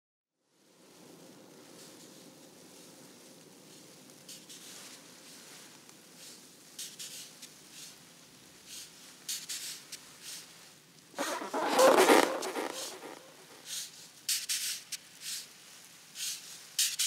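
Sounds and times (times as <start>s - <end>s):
plastic sheet crinkling and rustling: 11.2s - 13.6s.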